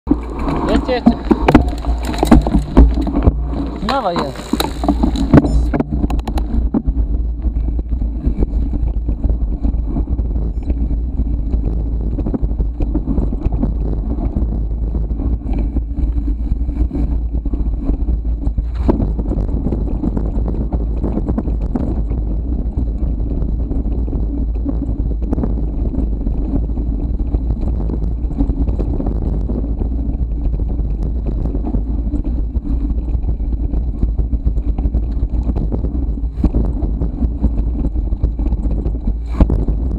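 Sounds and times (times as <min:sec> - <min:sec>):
bike rattling over bumps: 0:00.0 - 0:39.9
wind buffeting microphone: 0:00.0 - 0:39.9.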